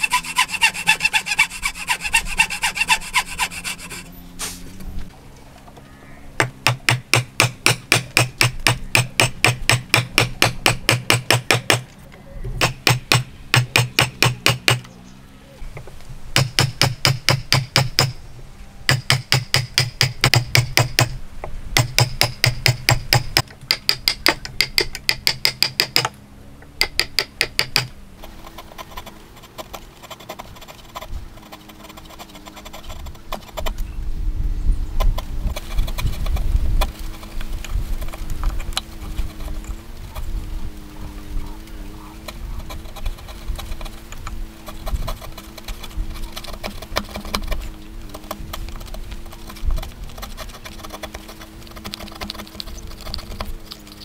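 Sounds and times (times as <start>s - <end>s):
hammer striking wood chisel: 6.4s - 11.9s, 12.6s - 14.9s, 16.4s - 18.2s, 18.9s - 21.2s, 21.8s - 26.2s, 26.8s - 27.9s.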